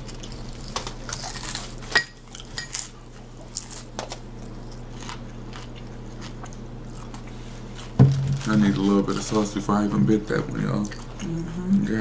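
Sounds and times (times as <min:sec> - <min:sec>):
taco shell crunching: 0:00.0 - 0:09.6.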